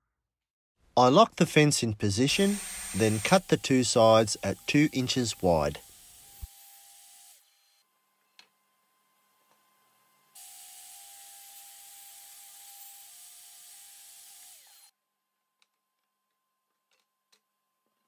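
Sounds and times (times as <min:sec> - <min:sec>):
table saw cutting wood: 0:02.2 - 0:07.8, 0:10.3 - 0:14.9.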